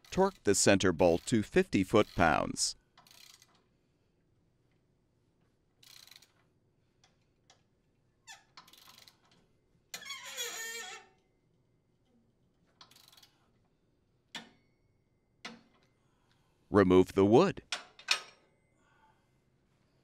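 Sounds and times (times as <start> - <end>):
ratchet wrench clicking: 3.0 - 3.6, 5.8 - 6.4, 8.6 - 9.4, 12.8 - 13.4.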